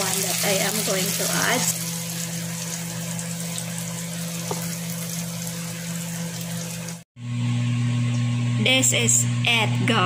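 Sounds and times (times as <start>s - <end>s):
shrimp sizzling in a pan: 0.0s - 7.0s.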